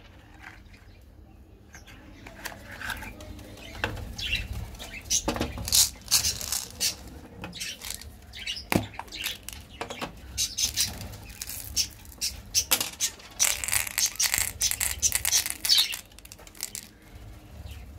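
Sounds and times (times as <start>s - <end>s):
candies rattling in plastic capsule: 5.5s - 8.2s, 8.8s - 9.8s, 10.6s - 17.0s.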